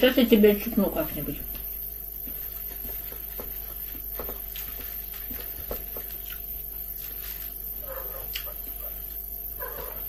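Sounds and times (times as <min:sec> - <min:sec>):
refrigerator hum: 0:00.0 - 0:10.0
chopsticks tapping plastic tray: 0:03.0 - 0:06.2.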